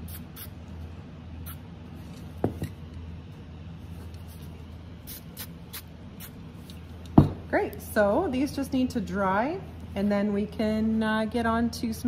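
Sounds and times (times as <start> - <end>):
aerosol spray can hissing: 0.0 - 0.6, 5.0 - 6.4
steady low hum: 0.0 - 12.0.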